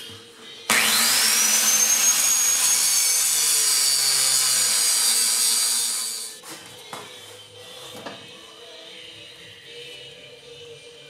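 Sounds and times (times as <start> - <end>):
angle grinder cutting steel: 0.7 - 6.4.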